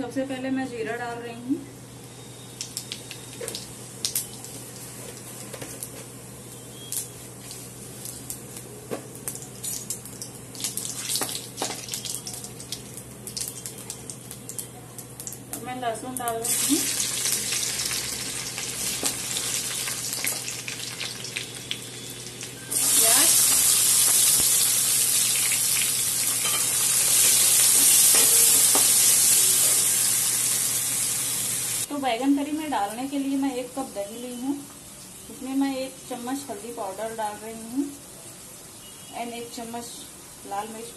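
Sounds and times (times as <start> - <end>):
seeds sizzling and popping in oil: 2.2 - 31.9.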